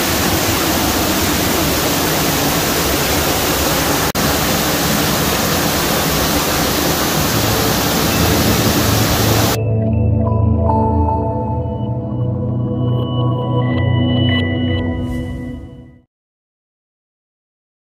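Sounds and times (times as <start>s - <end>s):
waterfall rushing up close: 0.0s - 9.6s.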